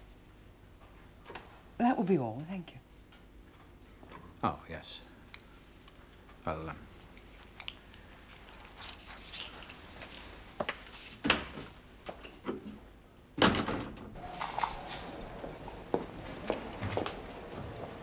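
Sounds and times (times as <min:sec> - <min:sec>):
footsteps crossing a room: 0:05.6 - 0:12.4, 0:14.2 - 0:18.0
metal mesh gate clanking: 0:14.2 - 0:16.2.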